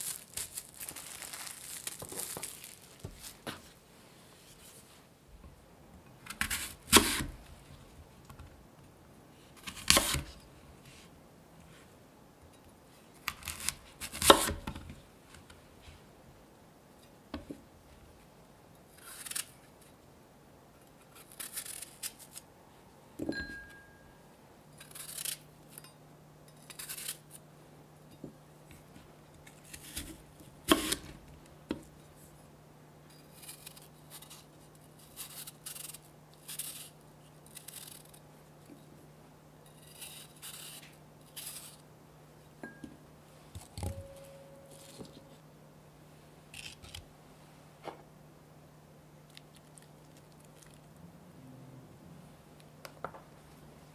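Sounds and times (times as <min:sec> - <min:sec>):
knife cutting crisp apples: 0:06.3 - 0:07.4, 0:09.6 - 0:10.4, 0:13.2 - 0:14.8, 0:21.0 - 0:22.4, 0:26.6 - 0:27.4, 0:29.4 - 0:31.2, 0:33.2 - 0:38.3, 0:39.7 - 0:41.8
knife scraping apple: 0:24.8 - 0:25.9, 0:26.6 - 0:27.4, 0:33.1 - 0:38.2, 0:39.7 - 0:41.8.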